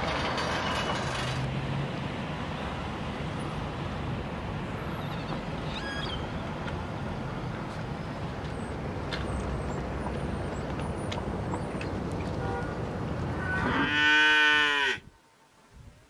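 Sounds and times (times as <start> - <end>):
cow mooing: 13.4 - 15.1
wind noise: 15.0 - 16.0.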